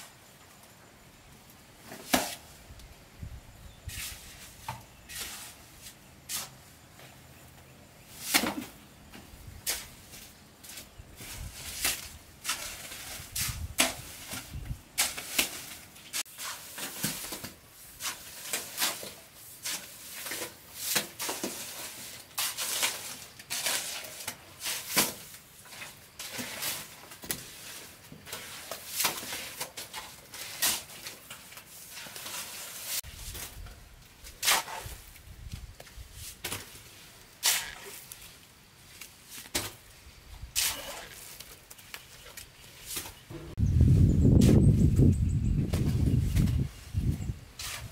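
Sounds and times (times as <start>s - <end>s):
shovel scraping through mortar: 3.8s - 6.6s, 9.6s - 33.6s, 34.2s - 35.2s, 35.9s - 39.9s, 40.5s - 41.8s, 45.8s - 47.9s.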